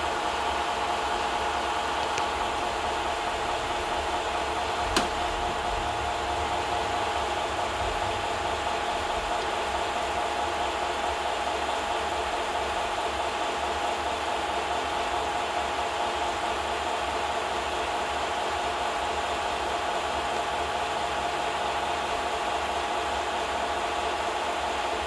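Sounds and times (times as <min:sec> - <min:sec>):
sharp click: 0:04.9 - 0:05.2.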